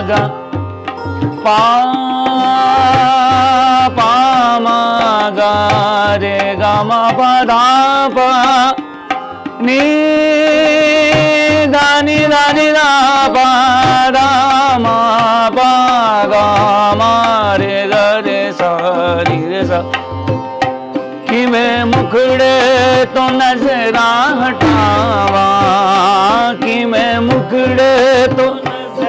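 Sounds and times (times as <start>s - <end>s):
man singing ornamented notes: 0.0s - 29.0s
tabla: 0.0s - 29.0s
plucked stringed lute: 0.8s - 1.7s.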